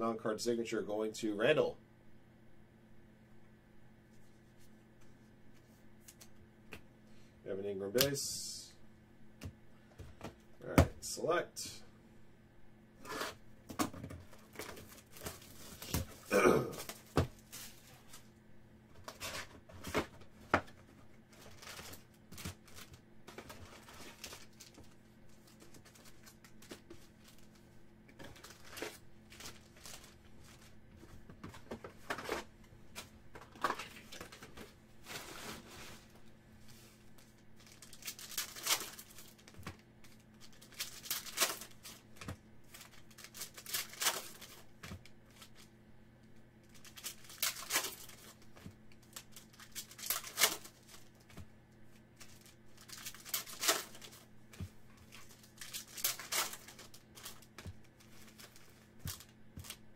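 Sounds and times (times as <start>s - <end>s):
foil wrappers tearing and crinkling: 21.3s - 27.5s, 28.2s - 30.6s, 37.6s - 45.7s, 46.7s - 51.3s, 52.2s - 54.3s, 55.0s - 59.8s.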